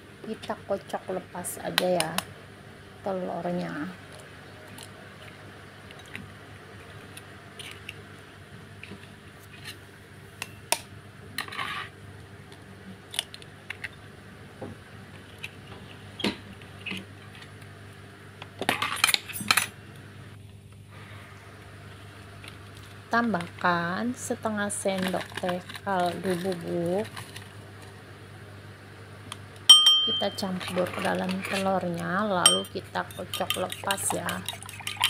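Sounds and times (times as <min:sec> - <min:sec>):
eggshell tapping on bowl: 0:32.5 - 0:32.8.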